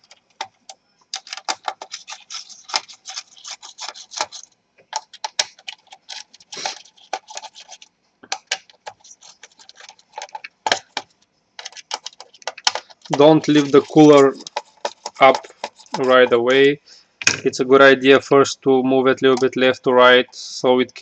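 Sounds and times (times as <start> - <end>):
screwdriver clicking and scratching: 0.0 - 16.4.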